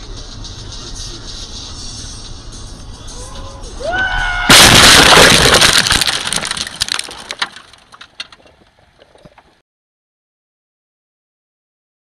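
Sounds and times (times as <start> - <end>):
car crash impact: 4.4 - 8.2
windscreen shattering: 4.5 - 8.3.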